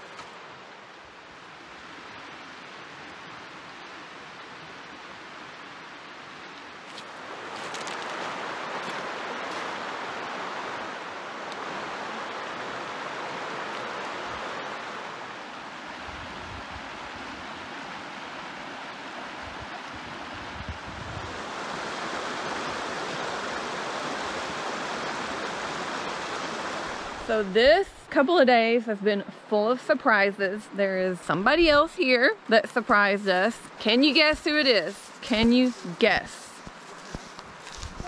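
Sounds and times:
creek water rushing over rocks: 0:00.0 - 0:28.2.

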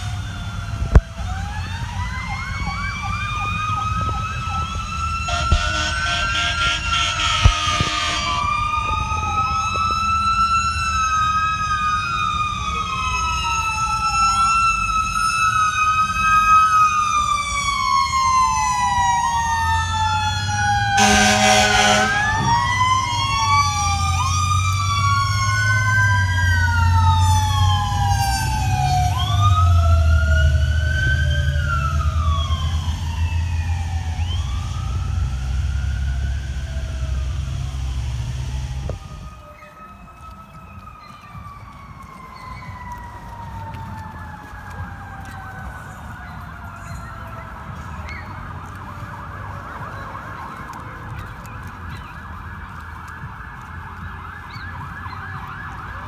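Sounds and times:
sirens wailing: 0:00.0 - 0:56.0
air horn blast: 0:05.3 - 0:08.6, 0:21.0 - 0:22.6.

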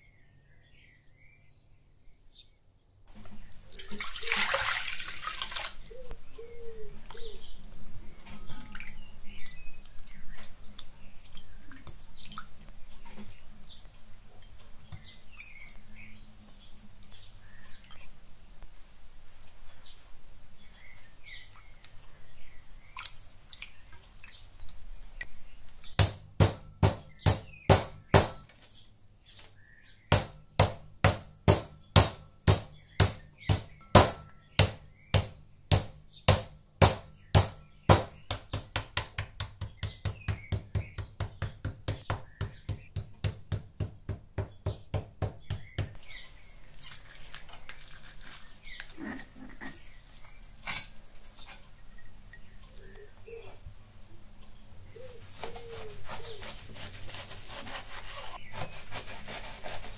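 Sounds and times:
mallet pounding meat: 0:26.0 - 0:28.4, 0:30.1 - 0:46.0.

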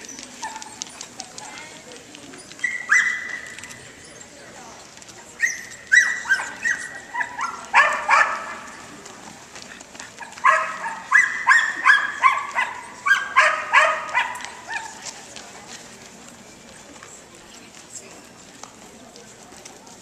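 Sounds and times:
dog barking: 0:05.4 - 0:08.7, 0:10.4 - 0:14.9.

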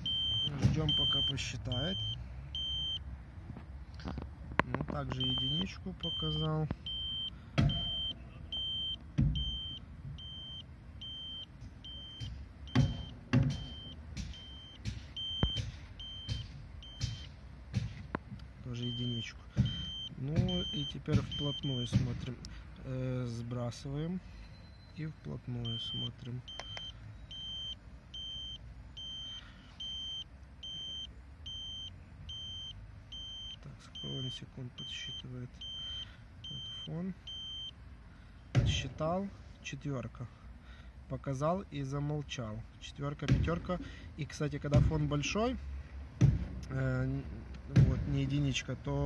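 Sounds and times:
short high beeps: 0:00.0 - 0:03.0, 0:05.2 - 0:17.3, 0:18.8 - 0:21.9, 0:24.3 - 0:25.0, 0:25.6 - 0:37.8
handling knocks and thuds: 0:00.5 - 0:01.0, 0:09.2 - 0:09.5, 0:11.6 - 0:18.4, 0:19.5 - 0:22.4, 0:38.5 - 0:39.1, 0:43.2 - 0:43.7, 0:44.7 - 0:45.2, 0:46.2 - 0:46.6, 0:47.7 - 0:48.4
short high electronic beeps: 0:05.2 - 0:17.3.

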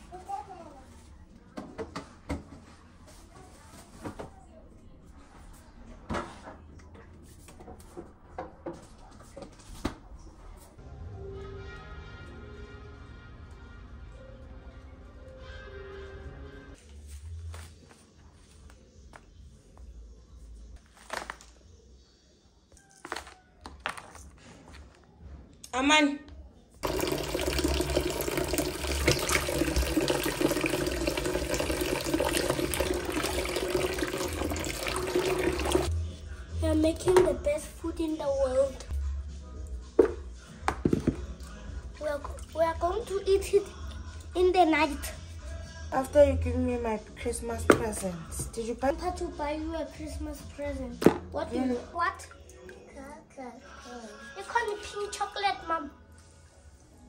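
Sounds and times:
music: 0:10.3 - 0:57.0
tap running into bowl: 0:26.8 - 0:35.9
water splashing as chicken rinsed: 0:26.8 - 0:35.9.

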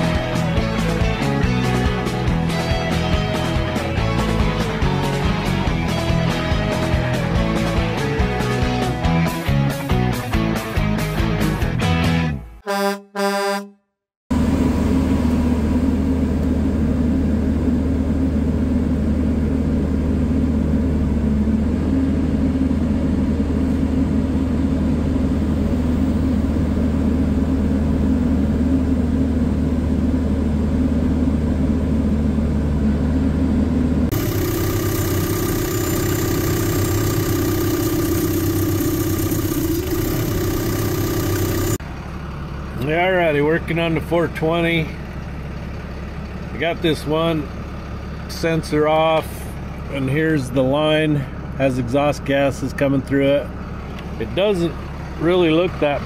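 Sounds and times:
diesel engine running: 0:00.0 - 0:13.6, 0:14.3 - 0:56.0
high-pitched engine tone: 0:31.8 - 0:56.0.

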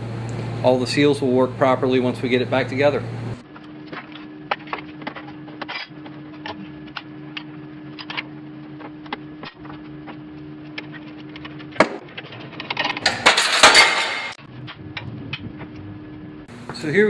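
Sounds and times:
steady low hum: 0:00.0 - 0:17.0
steel parts clinking: 0:12.3 - 0:14.4.

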